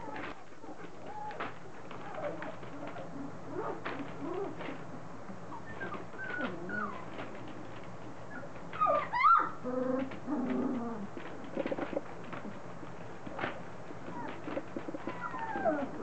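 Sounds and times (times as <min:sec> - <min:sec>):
puppies whimpering and squealing: 0:00.0 - 0:04.8, 0:05.5 - 0:07.4, 0:08.2 - 0:11.1, 0:14.0 - 0:16.0.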